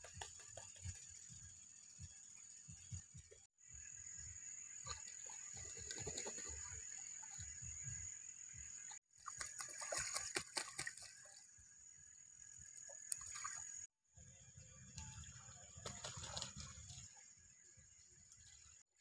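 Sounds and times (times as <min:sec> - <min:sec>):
geese splashing in water: 0:09.2 - 0:11.3, 0:15.1 - 0:17.2.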